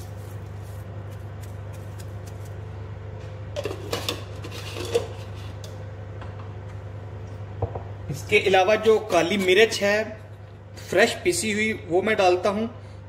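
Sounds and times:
steady low hum: 0:00.0 - 0:13.0
kitchen utensils clinking: 0:03.6 - 0:05.4.

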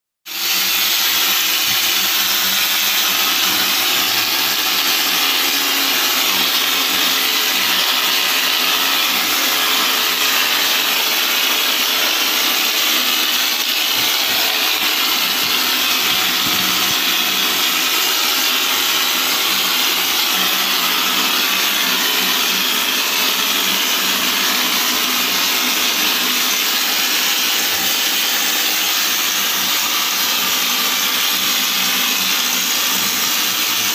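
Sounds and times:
machine running: 0:00.3 - 0:33.9.

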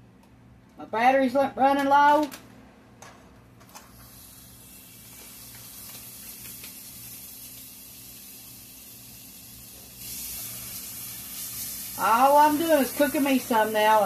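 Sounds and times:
batter sizzling in a pan: 0:03.9 - 0:14.0.

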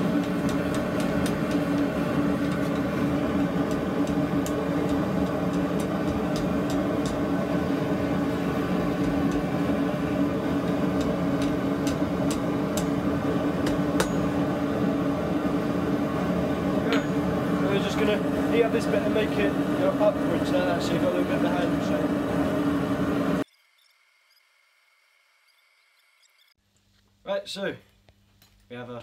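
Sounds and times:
forge humming drone: 0:00.0 - 0:23.5
hammer taps on hot steel: 0:00.2 - 0:02.9, 0:03.6 - 0:07.3, 0:09.0 - 0:09.5, 0:10.6 - 0:13.0, 0:13.6 - 0:14.4.

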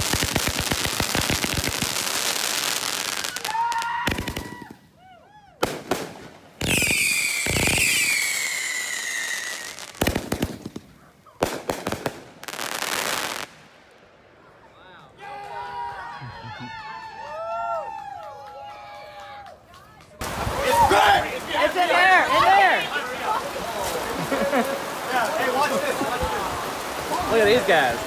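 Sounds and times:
firework bangs and pops: 0:00.0 - 0:04.9, 0:05.6 - 0:13.8
fireworks crackling: 0:00.0 - 0:05.0, 0:05.6 - 0:15.2, 0:20.1 - 0:28.0
whistling firework shells: 0:05.6 - 0:13.6.

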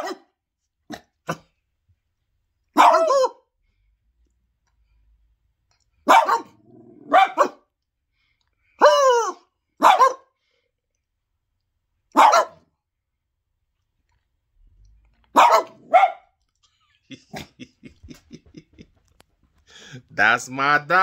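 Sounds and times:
man imitating dog barks: 0:00.0 - 0:00.3, 0:02.8 - 0:03.4, 0:06.1 - 0:07.6, 0:08.8 - 0:10.2, 0:12.2 - 0:12.6, 0:15.3 - 0:16.2
small dog barking: 0:00.0 - 0:00.3, 0:02.7 - 0:03.4, 0:06.0 - 0:07.7, 0:08.8 - 0:10.3, 0:12.1 - 0:12.6, 0:15.3 - 0:16.4
dog growling: 0:06.5 - 0:07.2.

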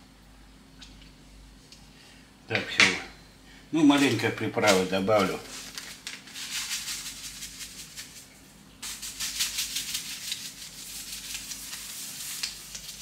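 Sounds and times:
seasoning shaken from container: 0:04.6 - 0:13.0
pan sizzling: 0:08.8 - 0:13.0.

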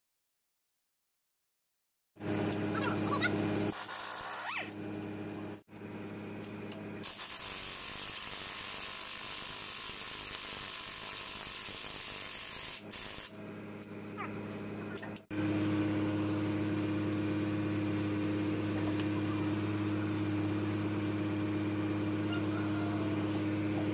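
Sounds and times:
hand-held power tool running: 0:07.0 - 0:13.4.

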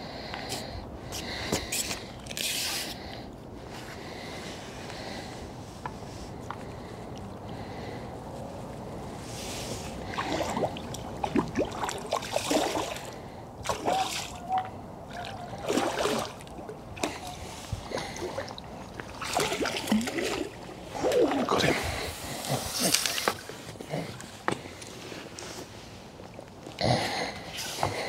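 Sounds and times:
water splashing from thrashing fish: 0:10.1 - 0:14.4, 0:15.1 - 0:22.0.

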